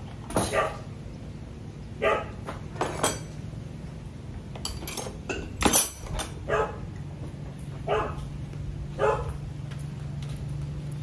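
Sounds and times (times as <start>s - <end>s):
dog barking: 0.4s - 0.8s, 2.0s - 2.4s, 6.5s - 6.8s, 7.8s - 8.3s, 9.0s - 9.4s.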